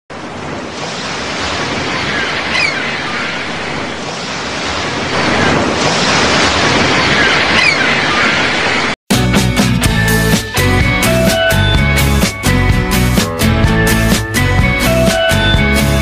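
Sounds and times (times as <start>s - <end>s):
ocean surf washing on beach: 0.1s - 9.0s.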